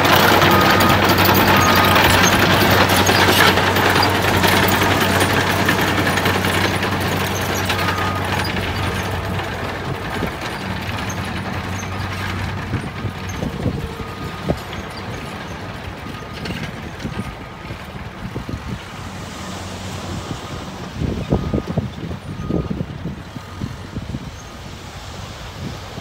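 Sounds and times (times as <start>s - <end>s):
soil and rocks tipping out: 0.0s - 19.1s
diesel engine running: 0.0s - 26.0s.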